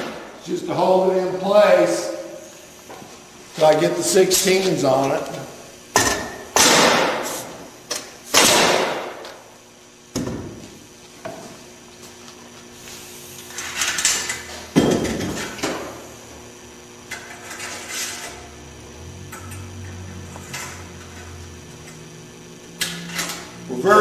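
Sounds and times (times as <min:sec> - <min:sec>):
pneumatic nailer shots: 0:06.0 - 0:09.4.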